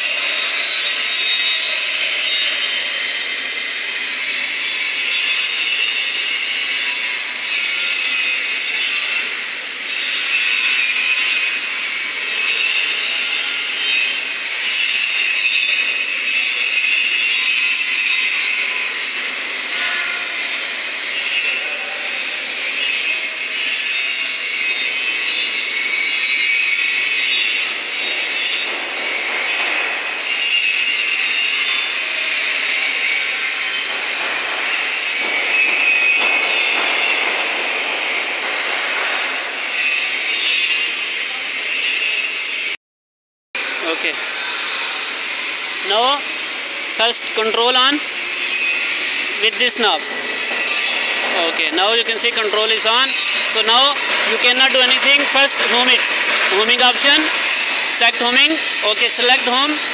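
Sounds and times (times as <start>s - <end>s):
harsh rasping workshop hiss: 43.6s - 59.9s.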